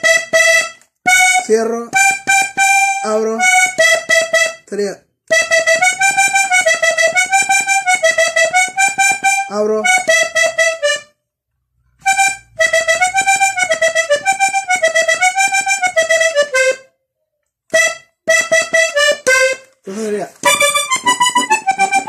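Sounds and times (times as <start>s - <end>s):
button accordion melody: 0.0s - 11.2s, 11.9s - 17.0s, 17.7s - 22.0s.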